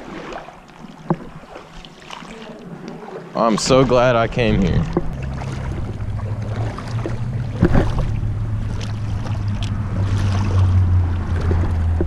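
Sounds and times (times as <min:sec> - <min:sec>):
footsteps splashing through water: 0:00.0 - 0:12.0
steady low rumble: 0:03.5 - 0:12.0.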